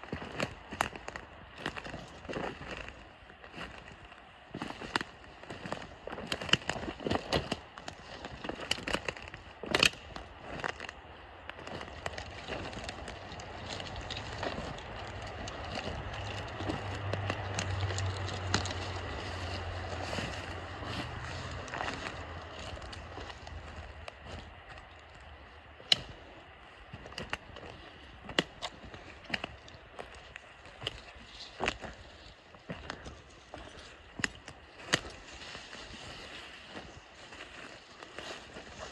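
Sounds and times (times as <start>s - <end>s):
footsteps through dry brush: 0.0s - 38.9s
branches scraping: 0.1s - 38.9s
twigs snapping: 4.6s - 36.9s
rushing noise with low rumble: 11.2s - 25.9s.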